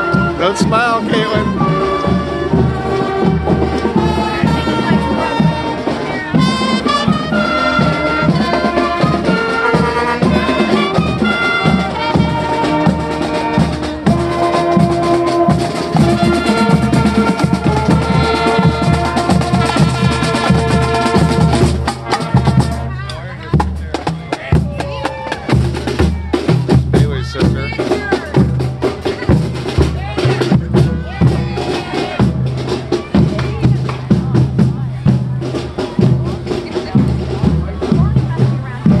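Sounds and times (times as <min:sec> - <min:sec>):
drums beating: 0:00.0 - 0:39.0
marching band playing: 0:00.0 - 0:39.0.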